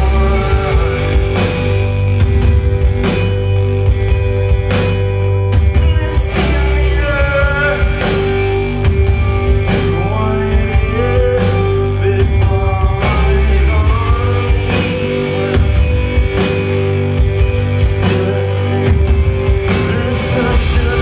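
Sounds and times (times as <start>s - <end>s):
man singing: 0.0s - 2.0s, 5.8s - 8.7s, 9.7s - 16.8s, 17.6s - 21.0s
bass guitar: 0.0s - 21.0s
drums: 0.0s - 21.0s
electric guitars: 0.0s - 21.0s.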